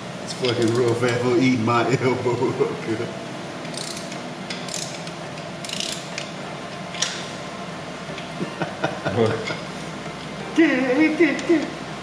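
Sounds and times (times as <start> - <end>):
ratchet wrench clicking: 3.6 - 6.3.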